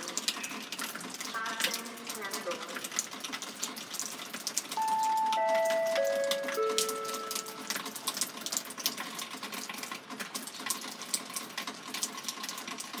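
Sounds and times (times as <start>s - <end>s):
water droplets dripping: 0.0s - 13.0s
descending electronic chime: 4.8s - 8.4s.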